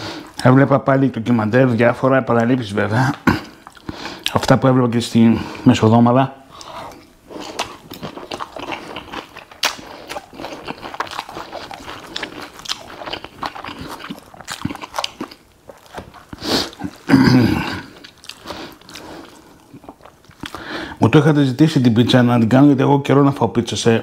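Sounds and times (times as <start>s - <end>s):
wet crunching chewing: 6.6s - 20.7s.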